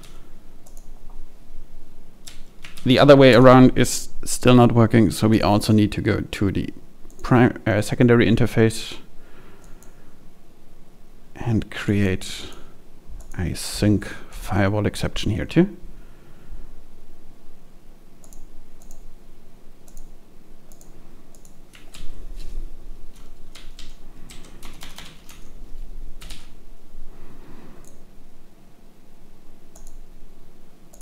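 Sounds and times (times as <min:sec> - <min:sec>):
typing on computer keyboard: 0:02.2 - 0:02.9, 0:20.7 - 0:22.1, 0:23.2 - 0:25.5, 0:26.2 - 0:26.5.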